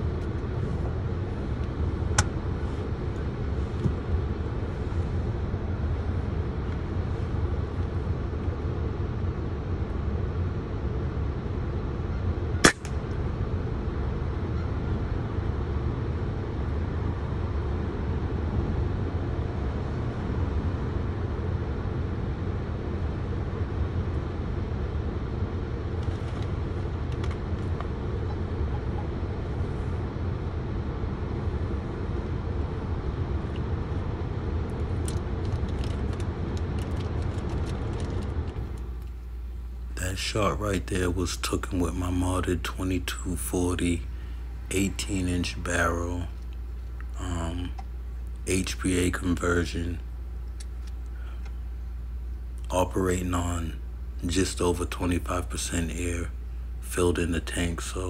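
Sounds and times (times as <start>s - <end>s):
low rumble: 0.0s - 52.6s
suppressed air gun shot: 12.6s - 13.0s.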